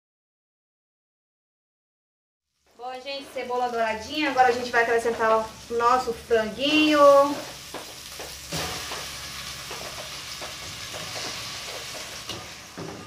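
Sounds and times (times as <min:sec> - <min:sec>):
chicken sizzling in hot oil: 0:02.5 - 0:13.0
spatula knocking and scraping pot: 0:07.4 - 0:13.0.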